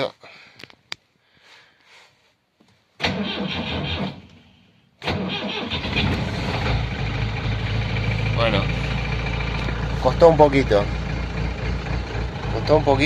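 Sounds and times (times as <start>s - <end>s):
diesel engine idling: 5.5s - 13.0s.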